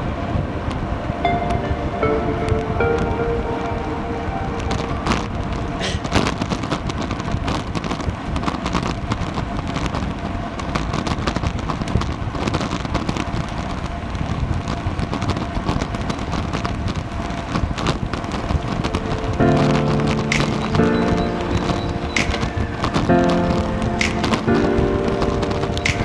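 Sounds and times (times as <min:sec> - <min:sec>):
road rumble: 0:00.0 - 0:26.0
wind rushing over microphone: 0:00.0 - 0:26.0
crackle of small knocks and clicks: 0:06.0 - 0:26.0.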